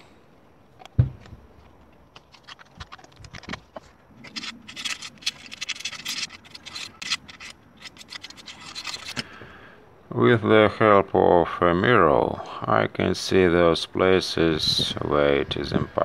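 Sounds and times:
razor blade scraping gasket: 0:04.2 - 0:09.2.

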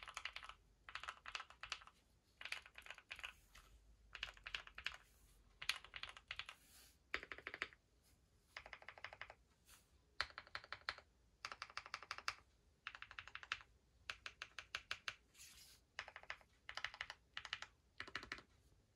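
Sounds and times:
mechanical keyboard typing: 0:00.0 - 0:03.4, 0:04.1 - 0:05.0, 0:05.6 - 0:07.8, 0:08.6 - 0:09.4, 0:10.2 - 0:15.2, 0:16.0 - 0:18.5.

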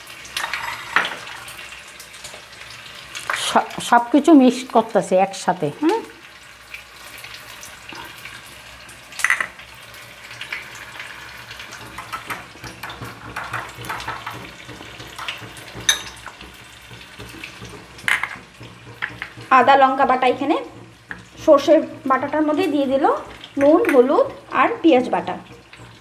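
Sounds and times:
hot oil sizzling: 0:00.0 - 0:26.0
spoon clinking against glass: 0:15.9 - 0:16.2.

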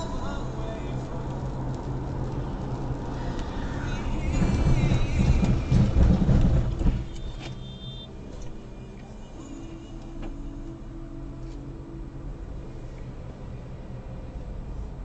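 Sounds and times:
car engine and road drone: 0:00.0 - 0:15.0.

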